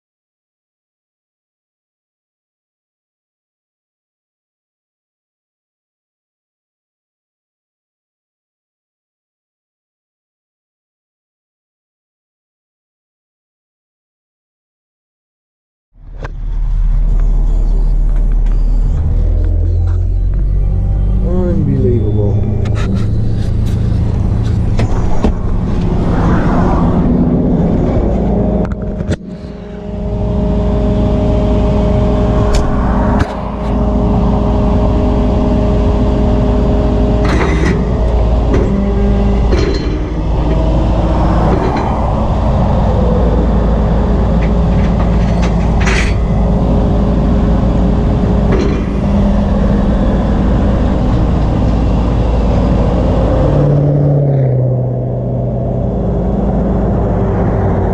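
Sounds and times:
passing traffic: 0:16.0 - 0:57.9
truck engine rumbling: 0:16.0 - 0:57.9.

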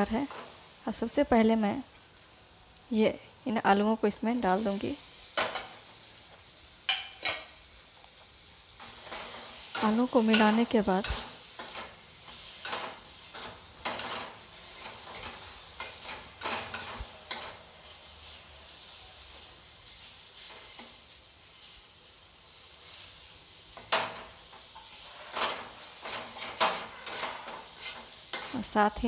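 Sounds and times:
frying hiss: 0:00.0 - 0:29.0
spatula scraping pan: 0:08.8 - 0:17.6, 0:23.8 - 0:28.8.

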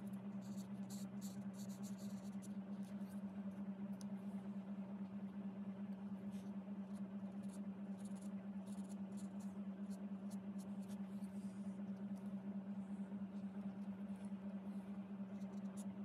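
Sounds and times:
pulsing electrical hum: 0:00.0 - 0:16.0
pen scratching on paper: 0:00.4 - 0:03.2, 0:06.2 - 0:12.2, 0:13.3 - 0:15.9.

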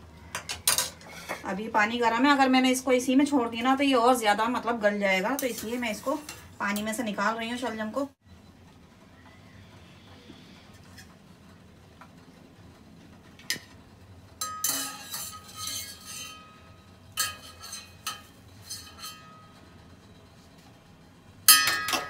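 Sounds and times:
wire skimmer clinking on pot: 0:14.4 - 0:19.6
ringing scrape: 0:14.4 - 0:20.2.

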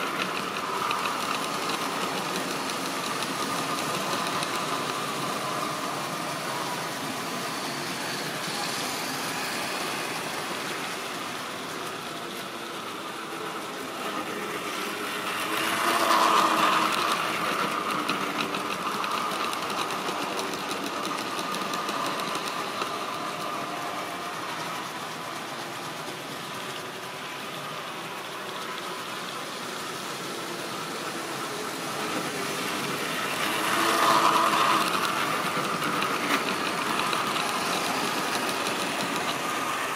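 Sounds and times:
model train wheels on track: 0:00.0 - 0:39.9
small electric motor humming: 0:29.8 - 0:39.9.

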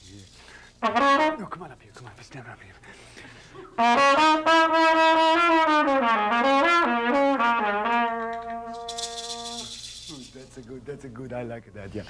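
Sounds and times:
trumpet playing: 0:00.8 - 0:01.6, 0:03.7 - 0:09.8.

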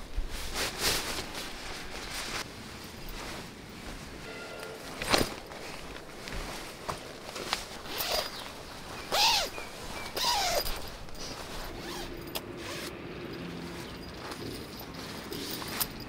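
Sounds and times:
fabric rustling: 0:00.0 - 0:12.9
zipper rasping: 0:07.8 - 0:12.9.

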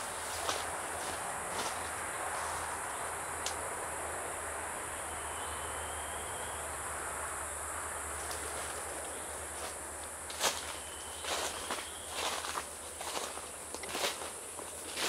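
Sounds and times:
insect chorus drone: 0:00.0 - 0:15.0
faint thin whistle: 0:05.2 - 0:06.6.

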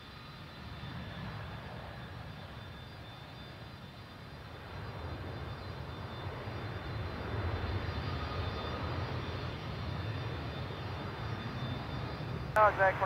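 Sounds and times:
distant jet engines rumbling: 0:00.4 - 0:13.0.

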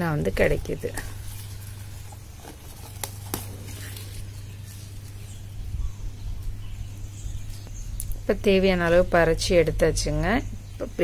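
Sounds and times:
mint leaves rustling: 0:00.0 - 0:11.0
steady low hum: 0:00.0 - 0:11.0
stems snapping: 0:01.0 - 0:05.2.

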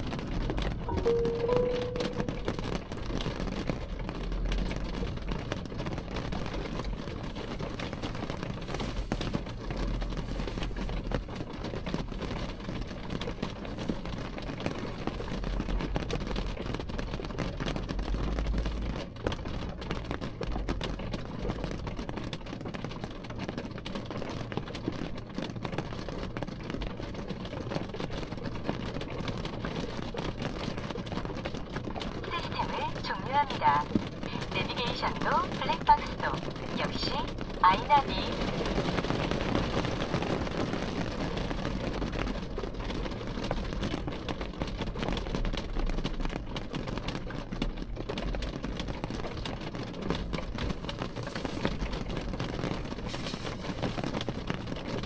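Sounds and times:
low steady rumble: 0:00.0 - 0:21.9
rain on window glass: 0:00.0 - 0:55.0.

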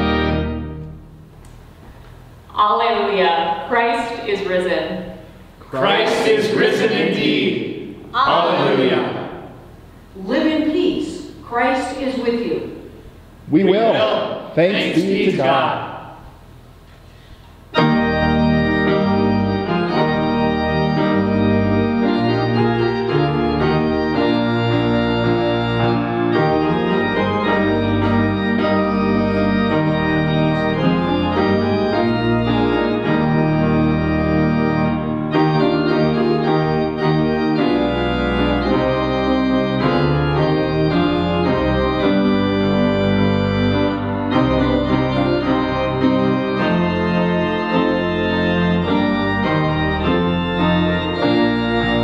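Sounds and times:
organ chords over bass line: 0:00.0 - 0:02.5, 0:05.7 - 0:10.1, 0:17.6 - 0:52.0.

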